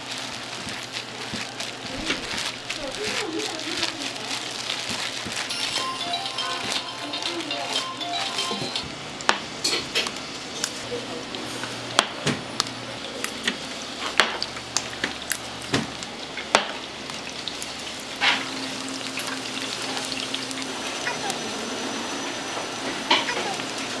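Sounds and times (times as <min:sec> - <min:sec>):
food frying in hot oil: 0:00.0 - 0:05.7, 0:09.4 - 0:24.0.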